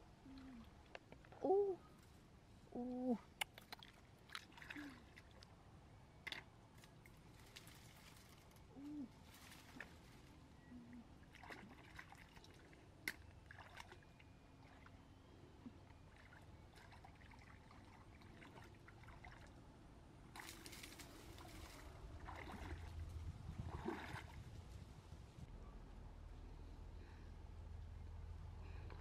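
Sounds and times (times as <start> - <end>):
hands splashing in stream water: 20.4 - 23.0.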